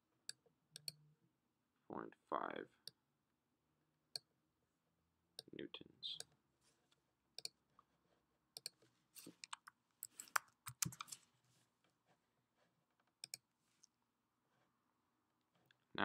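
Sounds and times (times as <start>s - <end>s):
mouse clicks: 0.3s - 1.0s, 7.4s - 7.6s, 8.6s - 8.8s, 13.2s - 13.4s
keyboard keystrokes: 9.4s - 11.1s.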